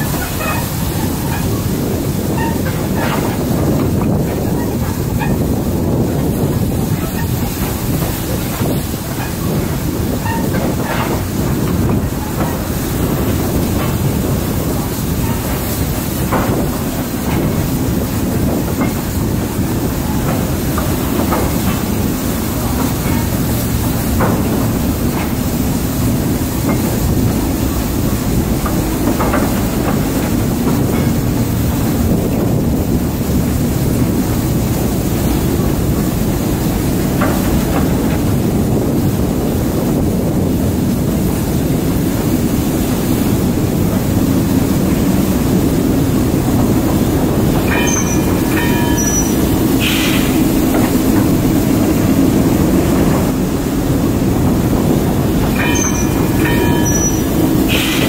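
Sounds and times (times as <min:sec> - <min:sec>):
clicks and squeaks from wagons: 0:00.0 - 0:03.6, 0:06.9 - 0:07.8, 0:08.4 - 0:12.7, 0:47.7 - 0:50.9, 0:55.6 - 0:58.0
train wheels rumbling on rails: 0:00.0 - 0:58.0.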